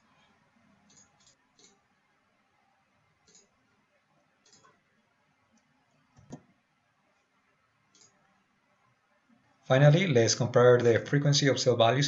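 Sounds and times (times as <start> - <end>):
mouse and keyboard clicks: 0.9 - 1.8, 3.2 - 3.6, 4.4 - 4.8, 7.9 - 8.2.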